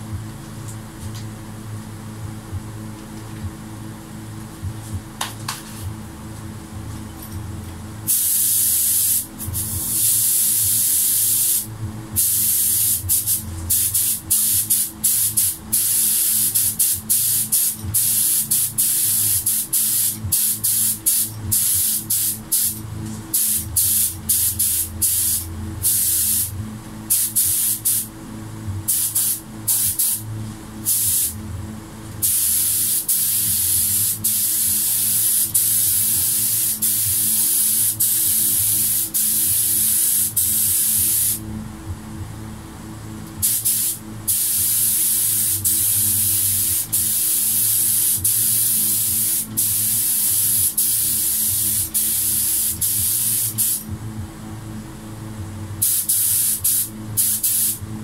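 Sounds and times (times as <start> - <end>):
low steady hum: 0.0 - 58.0
spray gun hissing: 8.1 - 26.5, 27.1 - 28.1, 28.9 - 30.2, 30.8 - 31.4, 32.2 - 41.4, 43.4 - 53.9, 55.8 - 57.8.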